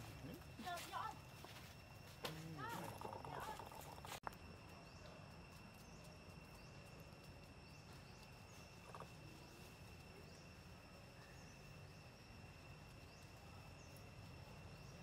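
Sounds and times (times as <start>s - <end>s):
faint chirps: 0.0s - 15.0s
steady high-pitched whine: 0.0s - 15.0s.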